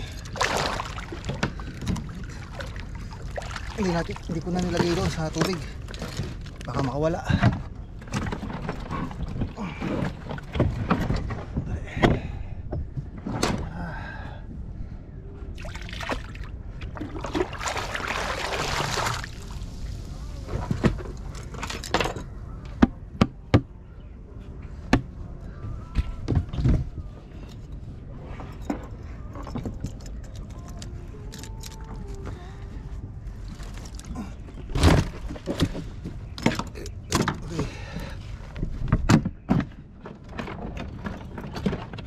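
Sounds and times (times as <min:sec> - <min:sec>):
water splashing and pouring: 0:00.0 - 0:05.7, 0:15.6 - 0:20.1.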